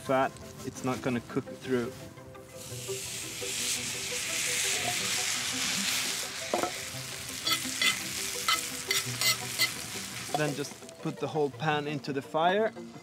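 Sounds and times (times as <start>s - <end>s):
potato sizzling in a pan: 2.6s - 10.9s
spatula scraping and tapping pan: 7.4s - 10.5s.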